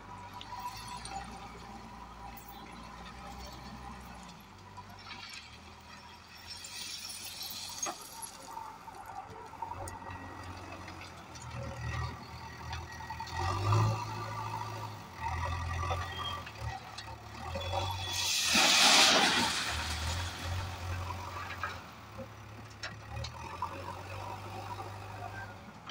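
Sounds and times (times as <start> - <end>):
stones pouring into metal hopper: 6.6 - 8.5, 18.0 - 21.0
diesel engine revving: 9.5 - 25.6.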